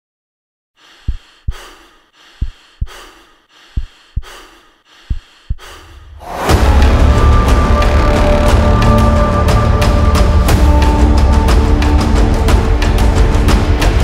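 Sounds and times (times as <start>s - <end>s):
heavy breathing: 0.8s - 6.5s
heartbeat thumps: 0.9s - 6.0s
music: 6.1s - 14.0s.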